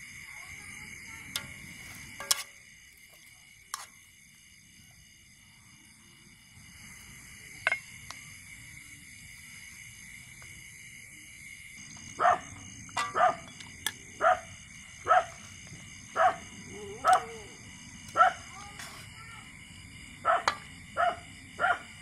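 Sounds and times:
dog barking: 0:12.2 - 0:13.4, 0:14.2 - 0:15.4, 0:16.2 - 0:16.4, 0:18.2 - 0:18.5, 0:20.2 - 0:21.9.

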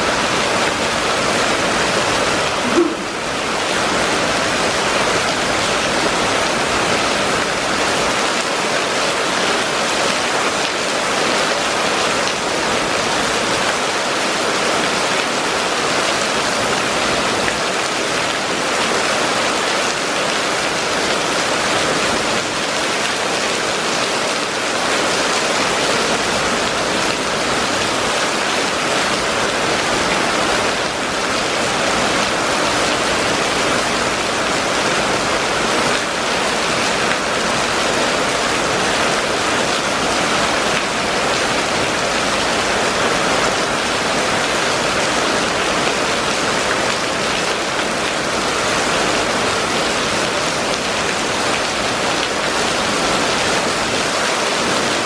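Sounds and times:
rain falling on wet street: 0:00.0 - 0:55.0.

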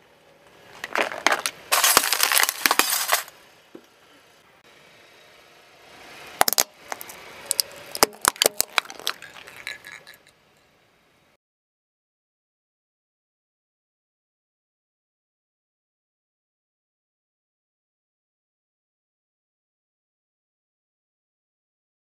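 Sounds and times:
glass crunching under car tyre: 0:00.8 - 0:03.3, 0:06.4 - 0:10.3
glass bulbs popping: 0:01.0 - 0:03.3, 0:06.4 - 0:10.3.

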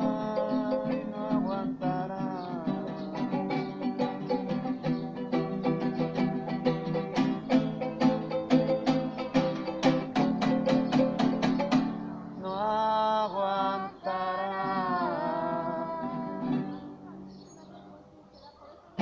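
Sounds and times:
person singing long held notes: 0:00.0 - 0:04.1, 0:12.4 - 0:16.8
guitars strummed in quick rhythm: 0:02.7 - 0:12.4.

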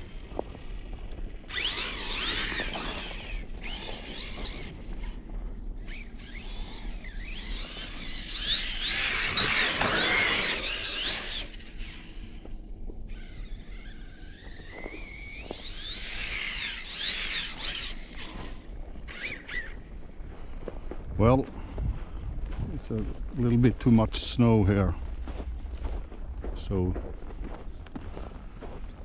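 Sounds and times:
wheels churning through snow: 0:00.0 - 0:19.8
electric motor whining: 0:00.0 - 0:19.9.

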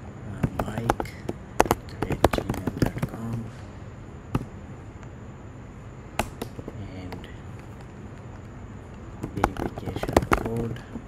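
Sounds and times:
computer keyboard typing: 0:00.4 - 0:03.5, 0:09.2 - 0:11.0.

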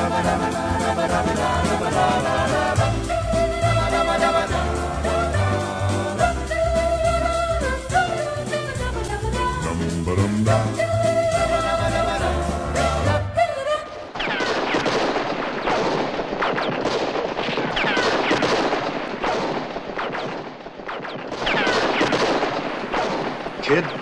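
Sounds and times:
music: 0:00.0 - 0:14.0
falling ricochet whines: 0:14.2 - 0:24.0
gunshots: 0:14.2 - 0:24.0.

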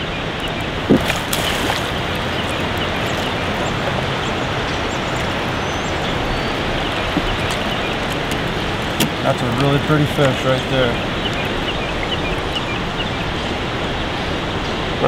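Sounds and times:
creek water flowing: 0:00.0 - 0:15.0.

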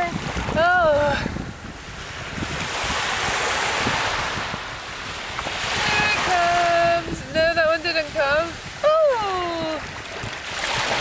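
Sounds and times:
wave washing up sand: 0:00.0 - 0:11.0
wind on microphone: 0:00.0 - 0:11.0
person calling out: 0:05.8 - 0:07.1, 0:08.8 - 0:09.8.

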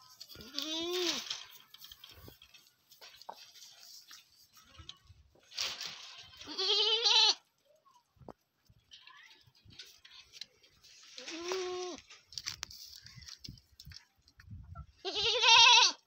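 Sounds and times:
young goat bleating: 0:00.4 - 0:01.2, 0:06.2 - 0:07.4, 0:11.2 - 0:12.1, 0:15.0 - 0:16.0.

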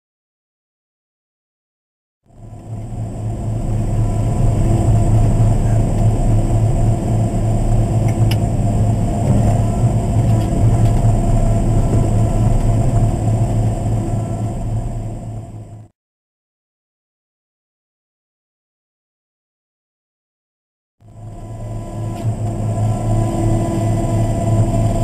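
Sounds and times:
diesel engine low drone: 0:02.3 - 0:15.9, 0:21.0 - 0:25.0.

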